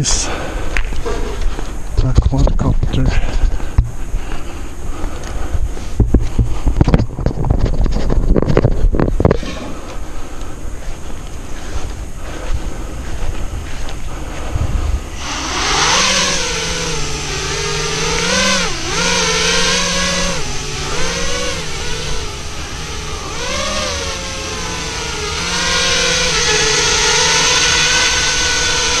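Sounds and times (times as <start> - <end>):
quadcopter motors buzzing whine: 8.9 - 29.0
propeller hiss: 9.3 - 29.0.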